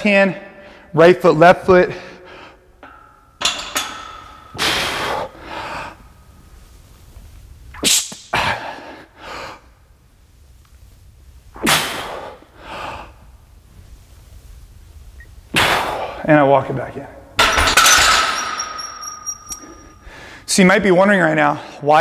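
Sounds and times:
man breathing forcefully: 4.0s - 6.1s, 11.7s - 13.3s, 20.0s - 20.5s.

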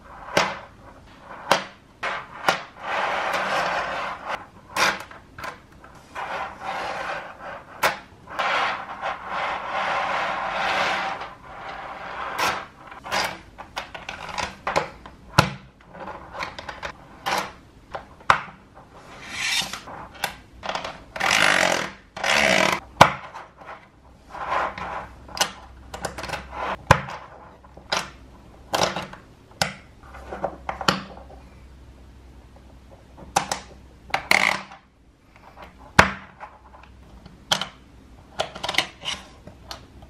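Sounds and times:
beads rubbing on tabletop: 0.0s - 5.1s, 5.8s - 13.4s, 18.9s - 20.0s, 23.6s - 25.2s, 26.4s - 26.8s.

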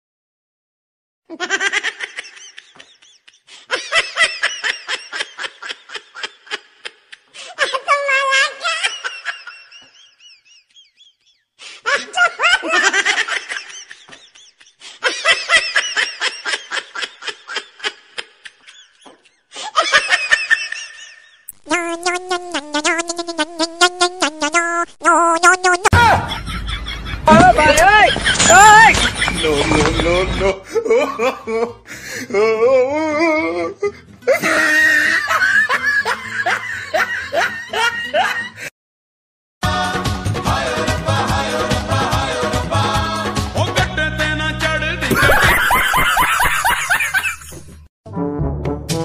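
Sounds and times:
high-pitched laughter: 1.3s - 23.6s, 32.5s - 38.6s, 45.1s - 47.7s.

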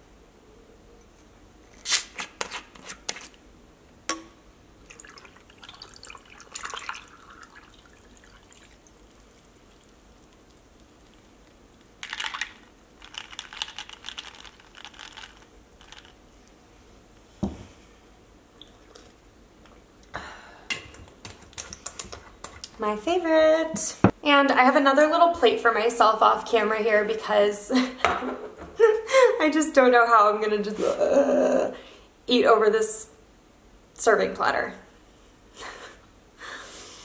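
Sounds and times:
liquid poured over ice: 4.8s - 15.4s.

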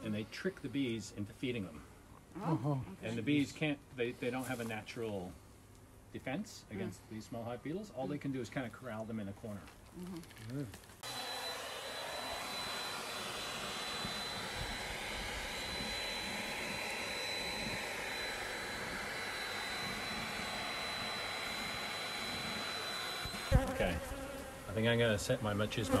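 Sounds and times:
bee vacuum running: 11.0s - 26.0s.

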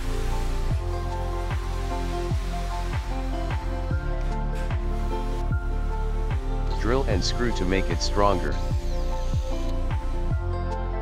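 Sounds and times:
sustained electronic chords: 0.0s - 11.0s.

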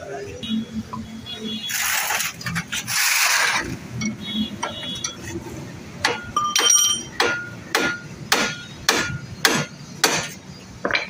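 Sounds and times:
hammer striking steel hub: 6.0s - 11.0s.

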